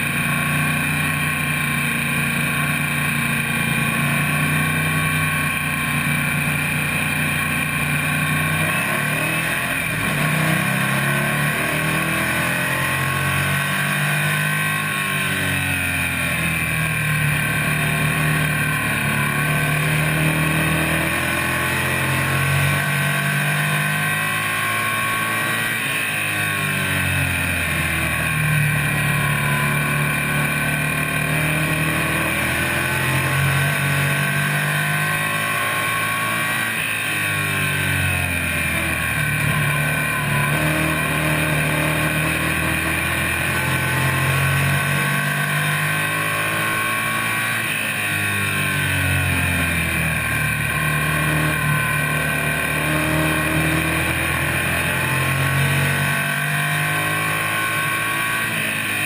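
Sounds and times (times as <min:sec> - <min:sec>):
race car engine revving: 0:00.0 - 0:59.0.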